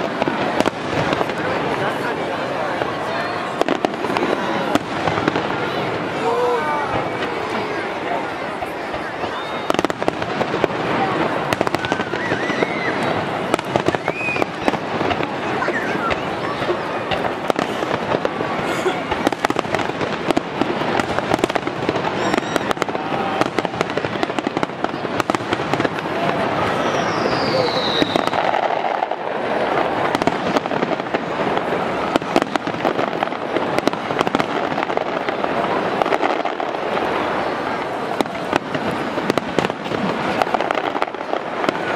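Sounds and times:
fireworks bangs and crackles: 0.0 - 41.9
firework whistle falling in pitch: 22.2 - 22.8, 26.7 - 28.4.

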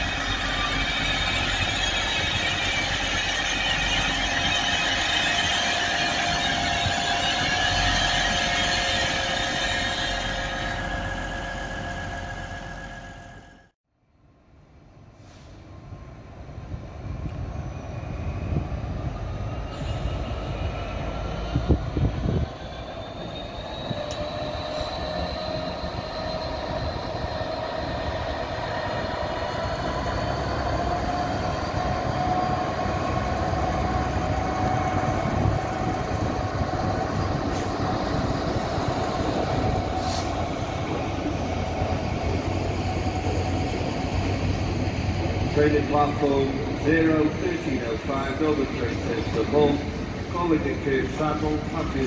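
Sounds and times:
diesel locomotive engine drone: 0.0 - 52.0.

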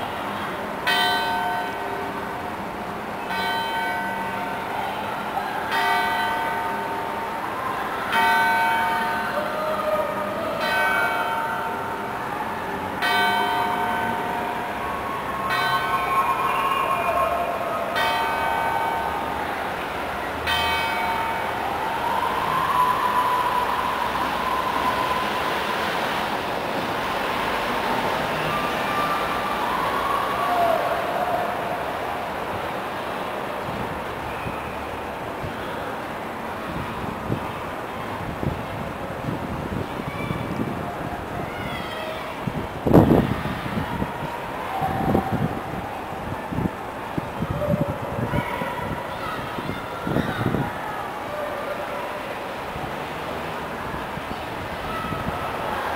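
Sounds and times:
city traffic noise: 0.0 - 55.9
church bell tolling: 0.8 - 2.4, 3.2 - 4.7, 5.7 - 7.4, 8.1 - 9.6, 10.6 - 12.3, 13.0 - 19.4, 20.4 - 21.6
distant siren wailing: 9.1 - 33.0.

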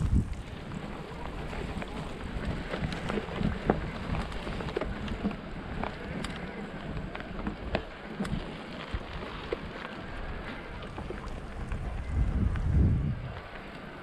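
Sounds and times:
bike tyres clicking and rattling: 0.0 - 14.0
wind buffeting microphone: 0.0 - 14.0.

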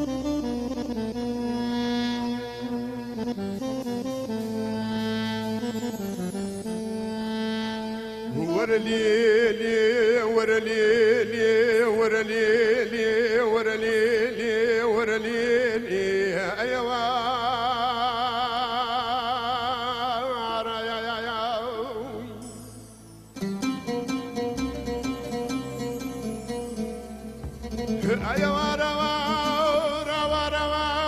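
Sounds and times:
ornamented melody with vibrato: 0.0 - 10.6, 21.7 - 31.0.

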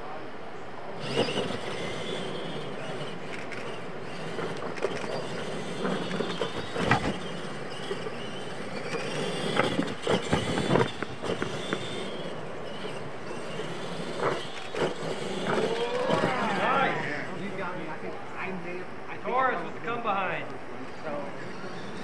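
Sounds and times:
tyres on dirt: 0.9 - 22.0
trucks knocking and clattering: 1.0 - 16.6
toy truck motors whining: 1.0 - 18.1, 21.0 - 22.0.

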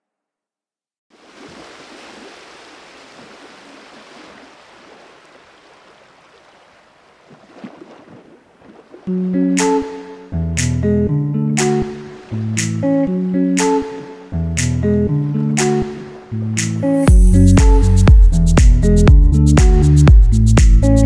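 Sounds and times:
guitar music: 9.1 - 21.0.

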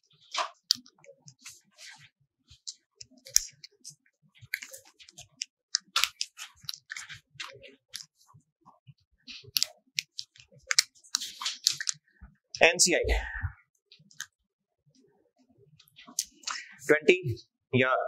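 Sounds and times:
small clicks and rustles: 0.0 - 12.4.

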